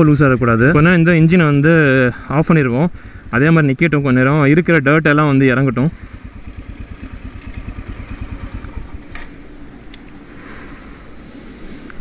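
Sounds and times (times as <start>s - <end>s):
motorcycle engine idling: 0.1s - 11.6s.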